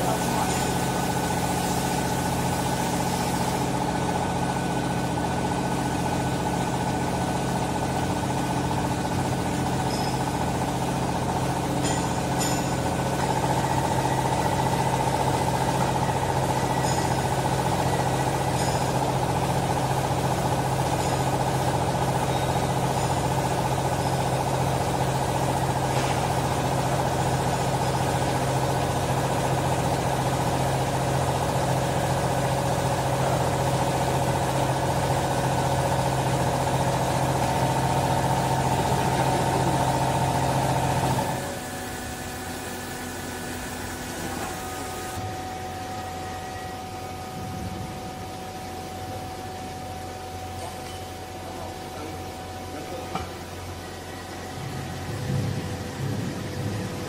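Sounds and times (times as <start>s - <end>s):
hydraulic pump motor humming and whining: 0.0s - 57.0s.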